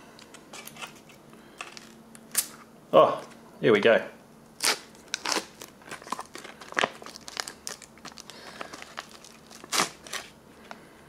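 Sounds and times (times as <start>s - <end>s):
foil pouch crinkling: 4.6s - 10.4s.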